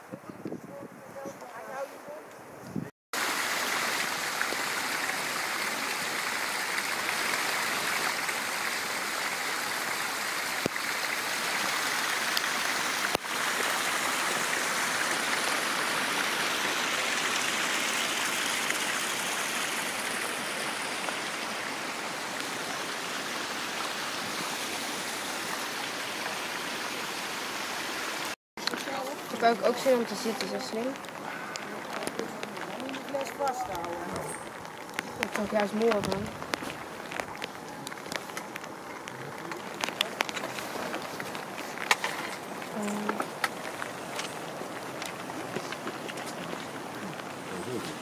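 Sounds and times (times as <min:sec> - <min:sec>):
rushing stream water: 0:03.1 - 0:48.0.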